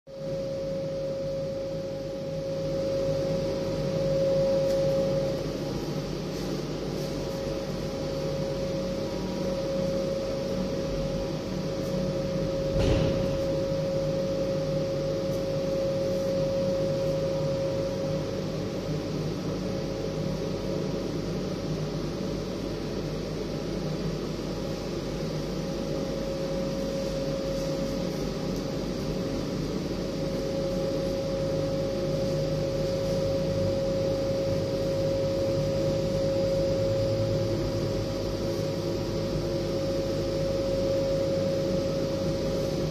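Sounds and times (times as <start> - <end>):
machine whirring hum: 0.1 - 42.9
steady tone: 0.2 - 20.4.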